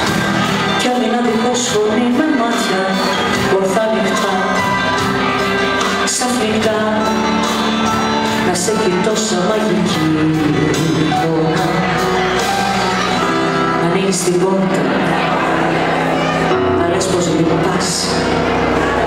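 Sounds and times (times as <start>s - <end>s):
amplified instrumental backing: 0.0s - 19.0s
woman singing into a microphone: 6.1s - 7.6s, 8.3s - 11.9s.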